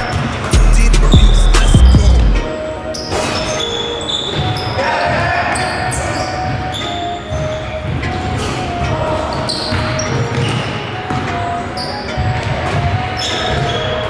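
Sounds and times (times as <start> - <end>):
sneaker squeaks: 0.0 - 0.6, 1.2 - 14.0.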